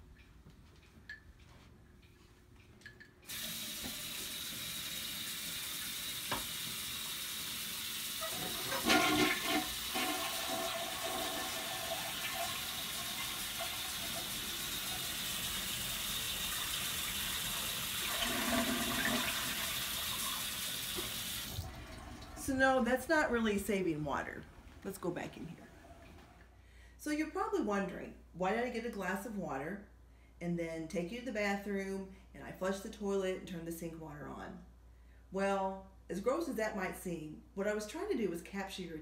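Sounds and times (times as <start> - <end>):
faucet running into sink: 3.3 - 22.6
toilet flushing: 3.3 - 23.7.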